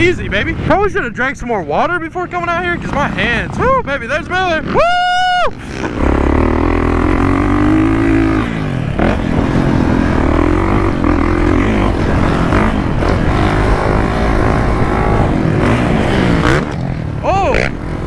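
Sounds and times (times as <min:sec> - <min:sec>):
motocross bike engine revving: 0:05.5 - 0:18.0.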